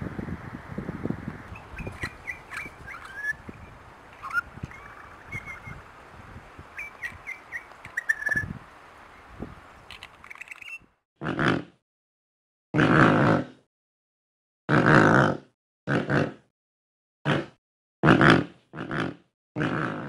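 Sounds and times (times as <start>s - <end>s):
bird chirping: 1.5s - 10.9s.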